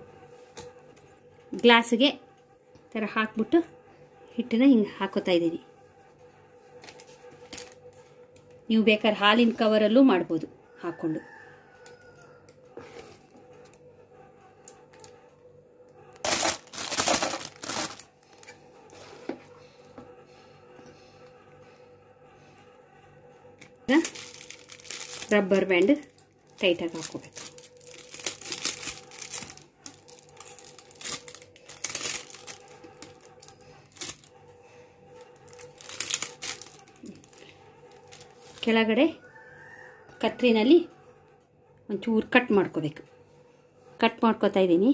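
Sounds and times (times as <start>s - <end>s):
plastic bag crinkling: 6.8s - 8.1s, 16.1s - 18.6s, 23.9s - 34.4s, 35.2s - 38.8s.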